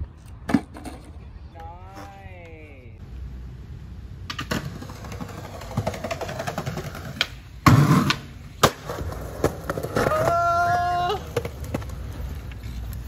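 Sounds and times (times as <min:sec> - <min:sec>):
skateboard clacks and knocks: 0:04.3 - 0:12.0
heavy skateboard impact: 0:04.4 - 0:10.6.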